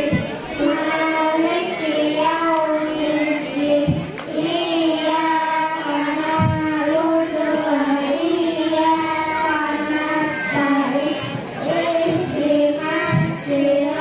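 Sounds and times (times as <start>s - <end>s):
boy chanting: 0.0s - 14.0s.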